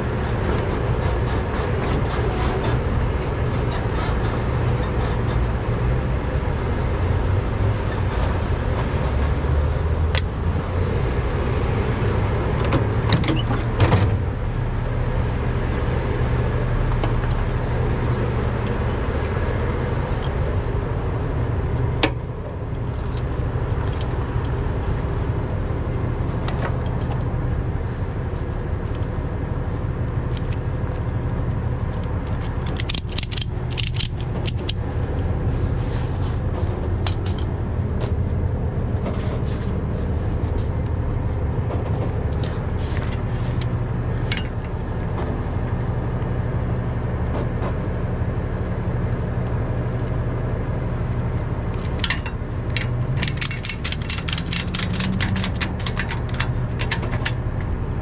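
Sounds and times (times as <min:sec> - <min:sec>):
metal clicks and clinks: 0:32.2 - 0:34.8, 0:51.8 - 0:57.4.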